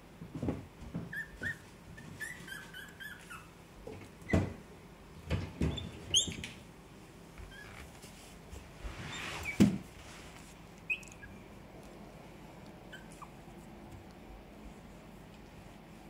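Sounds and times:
puppies squeaking: 0:01.1 - 0:03.6, 0:05.7 - 0:06.5, 0:10.8 - 0:11.4, 0:12.9 - 0:13.4.

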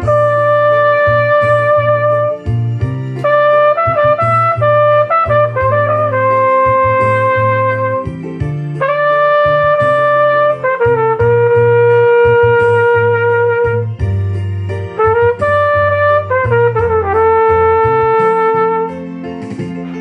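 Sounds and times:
flugelhorn melody: 0:00.0 - 0:19.3
backing track with bass line: 0:00.0 - 0:20.0.

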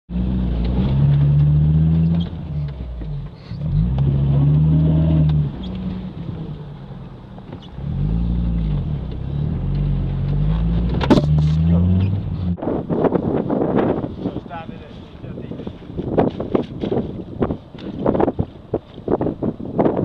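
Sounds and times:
van engine revving: 0:00.1 - 0:14.0.

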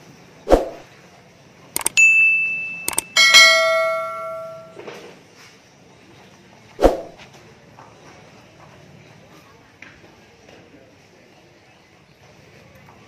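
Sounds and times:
mouse clicks: 0:01.8 - 0:02.0, 0:02.9 - 0:03.1
high notification ping: 0:01.8 - 0:04.8
bell chime: 0:01.8 - 0:04.9.

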